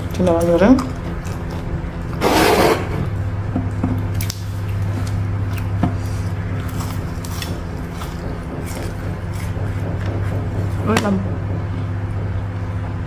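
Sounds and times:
chewing crispy food: 0:00.0 - 0:02.2, 0:04.0 - 0:10.0
steady low hum: 0:00.0 - 0:13.0.

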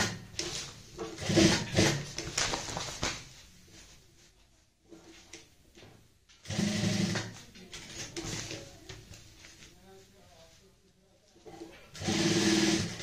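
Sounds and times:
sewing machine stitching: 0:00.0 - 0:00.5, 0:01.1 - 0:02.2, 0:06.4 - 0:07.4, 0:11.8 - 0:13.0
fabric handling: 0:02.1 - 0:06.1.

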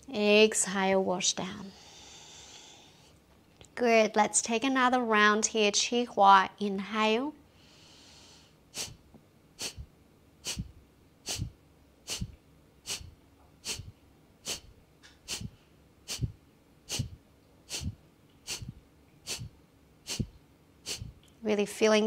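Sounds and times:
woman's forceful rhythmic exhales: 0:01.7 - 0:03.1, 0:07.6 - 0:09.0, 0:09.6 - 0:21.2.

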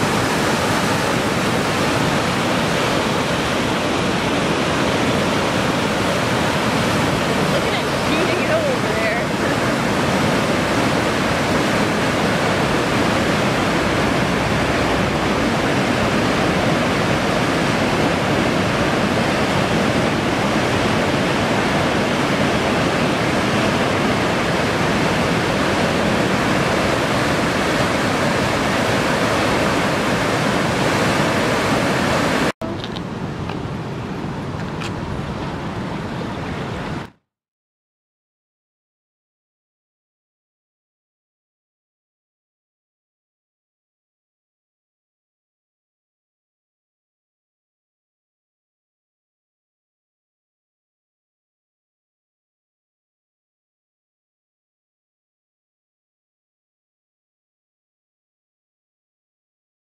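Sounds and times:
whitewater rapids roaring: 0:00.0 - 0:37.1.

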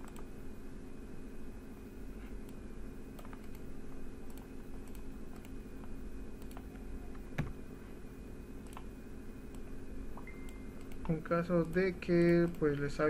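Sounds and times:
steady low hum: 0:00.0 - 0:13.0
mouse and keyboard clicks: 0:03.2 - 0:07.5.

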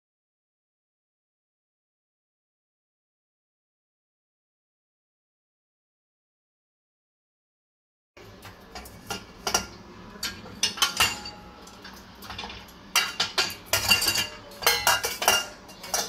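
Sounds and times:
metal pots and lids clinking: 0:08.2 - 0:16.0.

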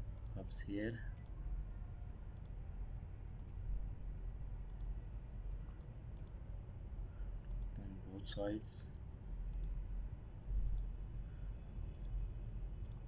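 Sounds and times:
steady low hum: 0:00.0 - 0:13.0
mouse buttons clicking: 0:10.6 - 0:11.0.

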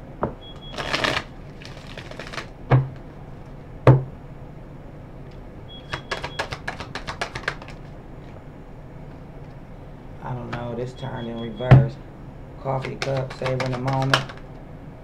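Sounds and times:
cards rustling: 0:00.7 - 0:02.5, 0:05.9 - 0:07.9, 0:12.8 - 0:14.5
crisp clicks of shuffling cards: 0:00.7 - 0:02.5, 0:05.9 - 0:07.9, 0:12.8 - 0:14.5
cards knocking on table: 0:05.9 - 0:07.8, 0:12.8 - 0:14.4.

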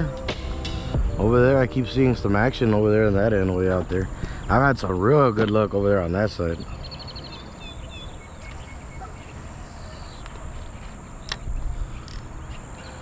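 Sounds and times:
insects trilling: 0:01.2 - 0:13.0
bird chirps: 0:04.0 - 0:13.0
sharp clicks: 0:11.2 - 0:12.3.

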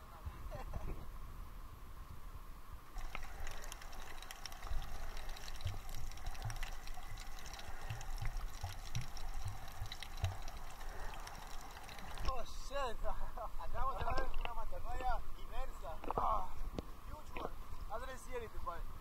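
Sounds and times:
underwater sloshing and bubbling: 0:02.9 - 0:17.9
crackling clicks: 0:03.0 - 0:12.4, 0:14.0 - 0:15.2
low dull thumps: 0:04.8 - 0:10.7.

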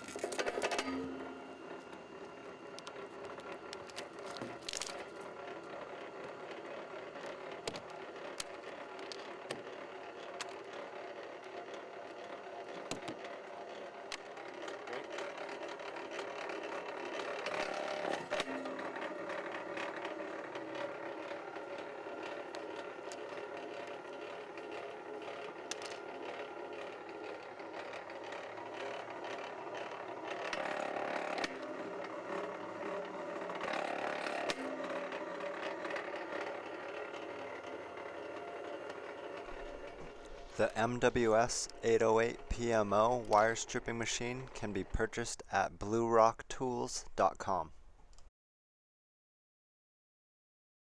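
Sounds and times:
wire stripper motor humming: 0:00.0 - 0:48.3
scattered clicks: 0:02.2 - 0:05.1.

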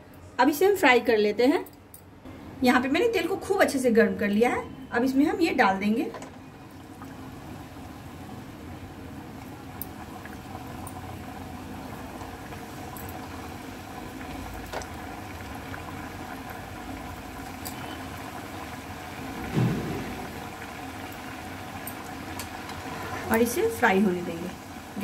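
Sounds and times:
oil sizzling and bubbling: 0:05.0 - 0:25.0
low thud: 0:19.4 - 0:20.7.

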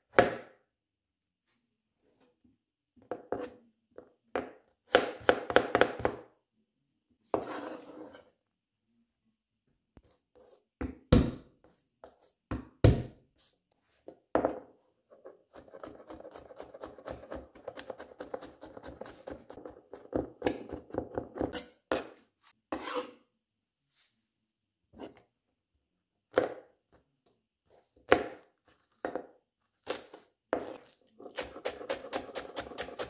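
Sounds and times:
knife chopping on plastic board: 0:04.4 - 0:06.2, 0:10.8 - 0:11.5, 0:12.5 - 0:13.2, 0:15.5 - 0:22.1, 0:26.3 - 0:26.7, 0:28.0 - 0:28.5, 0:29.9 - 0:33.0.

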